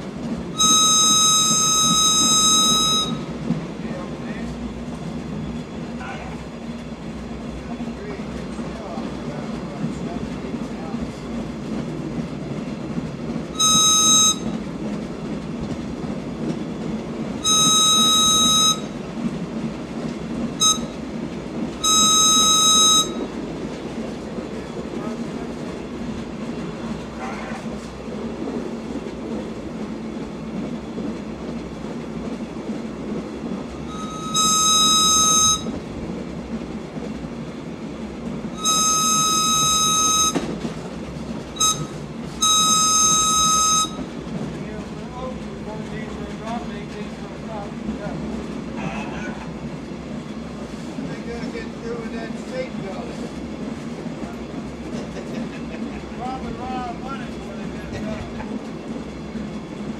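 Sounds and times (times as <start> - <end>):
rail car rumbling on track: 0.0 - 59.9
high air whistle: 0.6 - 3.3, 13.6 - 14.5, 17.4 - 19.0, 20.6 - 21.0, 21.8 - 23.3, 33.9 - 35.8, 38.6 - 40.5, 41.6 - 44.0.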